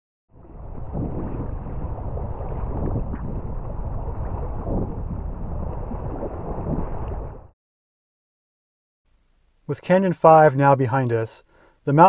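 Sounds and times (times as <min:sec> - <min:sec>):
water splashing around boat: 0:00.4 - 0:07.5
wind buffeting microphone: 0:00.4 - 0:07.5.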